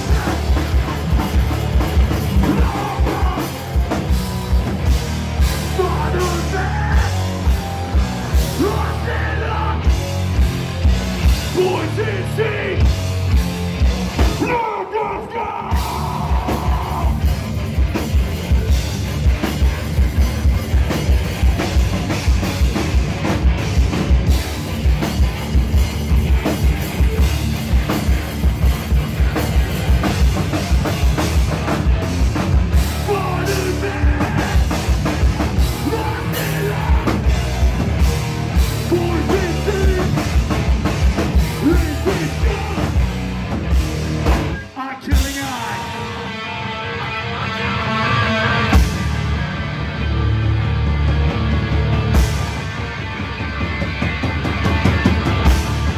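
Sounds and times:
shouted vocals: 0.0s - 0.9s, 2.2s - 3.9s, 5.6s - 7.4s, 8.2s - 9.9s, 11.5s - 12.9s, 14.3s - 17.3s, 32.9s - 34.9s, 35.5s - 37.6s, 41.6s - 43.2s
fast pounding drums: 0.0s - 46.0s, 50.8s - 55.9s
distorted electric guitars: 0.0s - 55.9s
hardcore band playing live: 0.0s - 55.9s.

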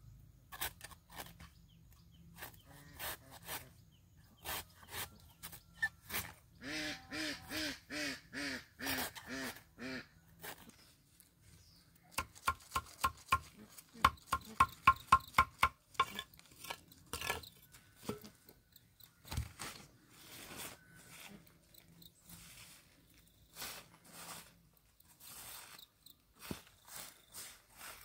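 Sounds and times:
ducks quacking: 6.6s - 10.1s
sharp knocks: 12.2s - 16.2s.

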